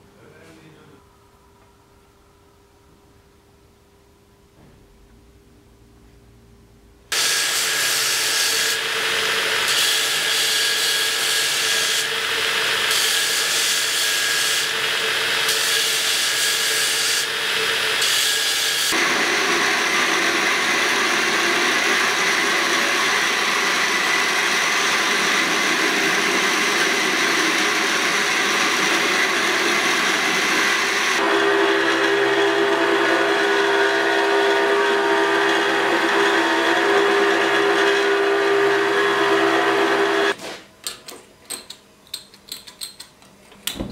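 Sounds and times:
belt grinder grinding metal: 7.2 - 40.4.

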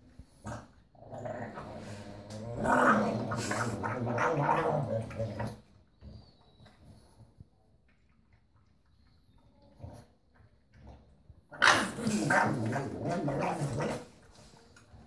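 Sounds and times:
dog growling: 0.3 - 5.7, 10.8 - 14.5.

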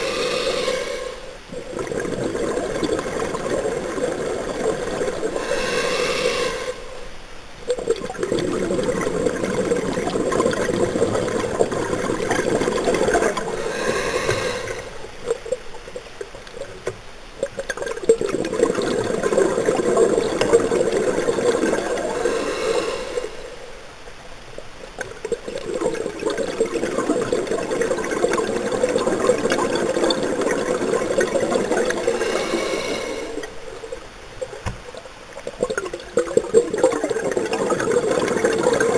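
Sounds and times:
regulator inhalation hiss: 0.0 - 1.4, 5.2 - 7.1, 13.5 - 15.1, 22.0 - 23.6, 32.0 - 33.5
exhaled air bubbling: 0.0 - 23.8, 24.6 - 38.9.

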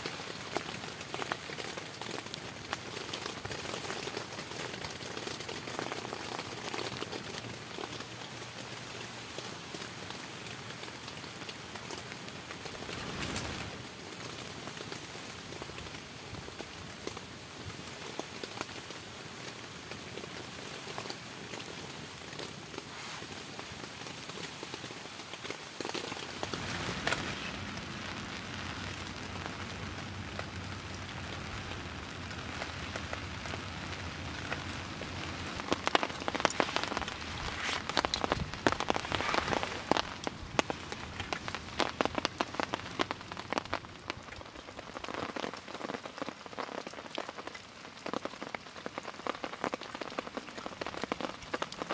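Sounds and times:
steady rain falling: 0.0 - 51.9
aluminium foil crinkling: 34.5 - 43.8.

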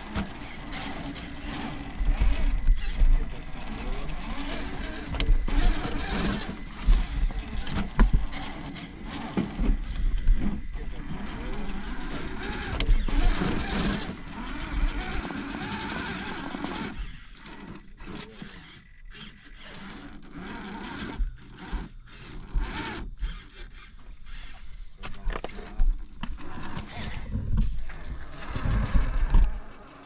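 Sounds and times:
sharp clicks and knocks: 0.0 - 14.2
small electric motor whirring: 0.0 - 30.0.

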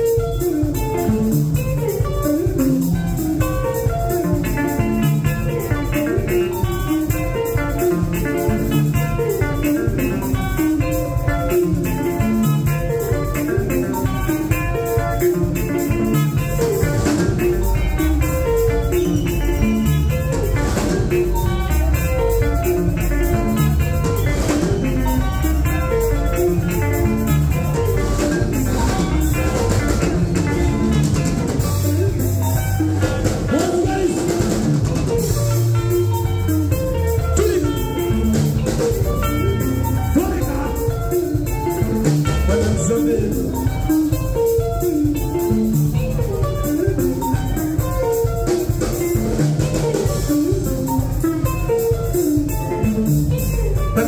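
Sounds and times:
bass guitar: 0.0 - 54.0
drum kit steady beat: 0.0 - 54.0
electric guitars picking fast runs: 0.0 - 54.0.

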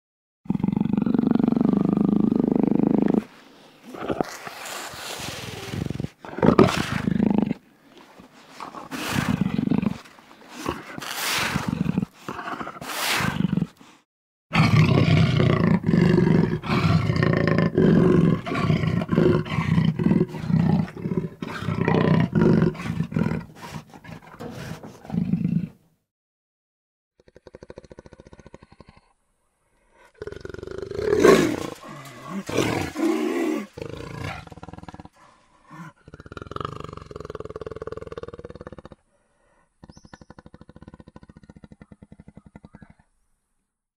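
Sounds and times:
jaguar growling: 8.5 - 13.8, 14.5 - 25.8, 30.0 - 43.0
jaguar snarling: 8.5 - 13.8, 14.5 - 25.8, 30.0 - 43.0.

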